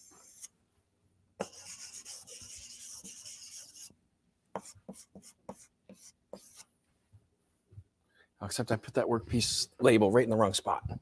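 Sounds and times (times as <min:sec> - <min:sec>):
chalk scraping on chalkboard: 0:00.0 - 0:00.5, 0:01.4 - 0:03.9, 0:04.6 - 0:06.7.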